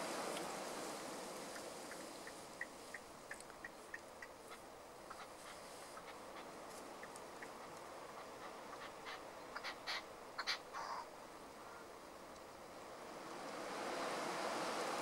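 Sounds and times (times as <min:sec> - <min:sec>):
faint open air hiss: 0:00.0 - 0:15.0
partridge rasping calls: 0:01.5 - 0:11.9.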